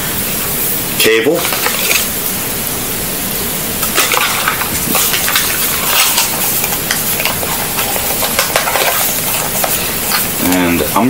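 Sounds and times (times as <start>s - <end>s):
packaging crinkling and rustling: 1.3s - 2.2s, 3.8s - 10.6s.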